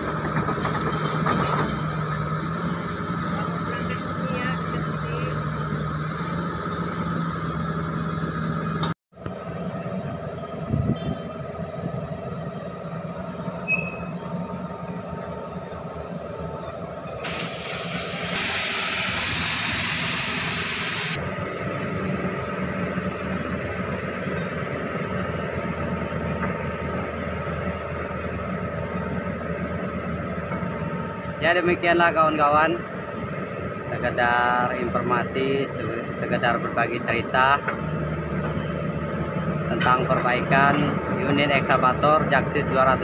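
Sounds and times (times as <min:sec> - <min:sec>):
excavator diesel engine running: 0:00.0 - 0:43.0
loud steady hiss: 0:17.2 - 0:29.0.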